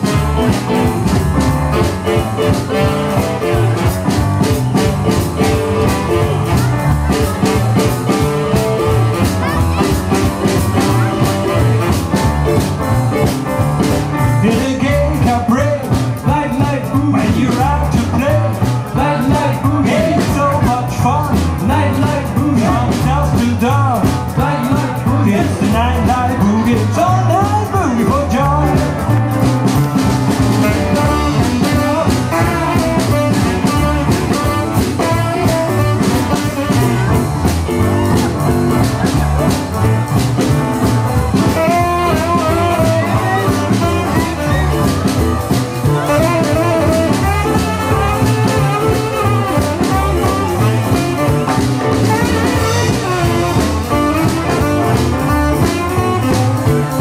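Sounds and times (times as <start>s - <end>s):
tenor saxophone: 0.0s - 12.6s, 30.3s - 57.0s
drum kit: 0.0s - 57.0s
electric guitar: 0.0s - 57.0s
upright bass: 0.0s - 57.0s.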